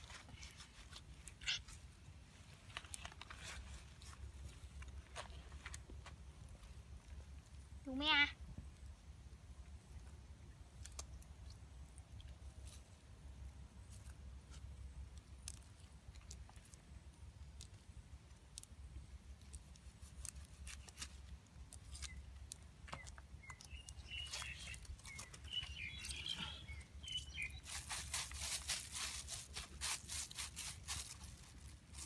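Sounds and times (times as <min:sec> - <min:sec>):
bird chirps: 0:22.9 - 0:28.0.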